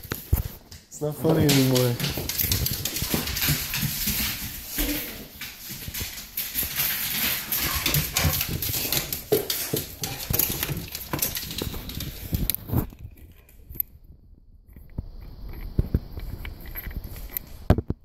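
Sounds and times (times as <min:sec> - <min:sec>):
dog claws clicking on wooden floor: 0:00.0 - 0:13.5.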